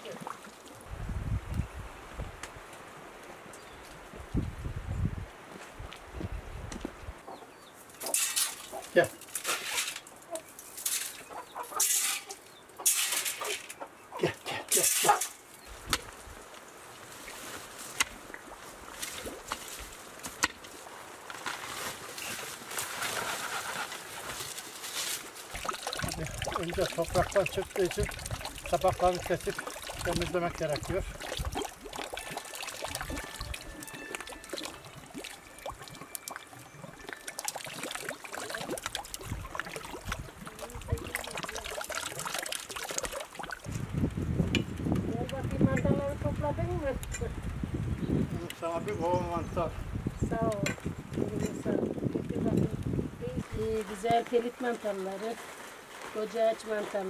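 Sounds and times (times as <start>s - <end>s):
splashes of tuber being rinsed: 25.5s - 43.8s
fountain water trickling: 25.5s - 44.0s.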